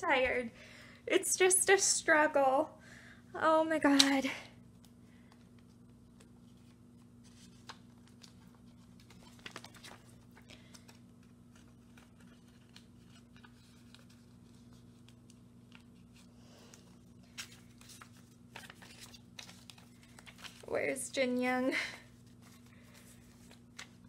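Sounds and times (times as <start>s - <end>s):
plastic sleeves rustling and clicking: 4.8s - 20.7s, 22.2s - 24.0s.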